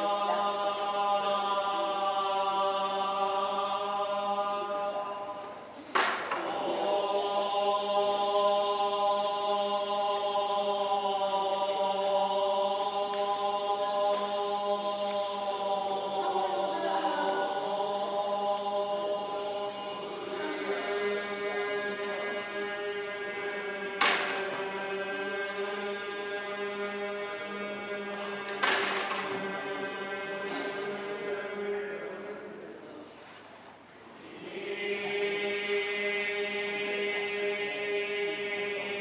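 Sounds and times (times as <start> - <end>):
monks chanting in unison: 0.0 - 33.3, 34.2 - 39.0
faint clatter of offerings: 5.1 - 6.8.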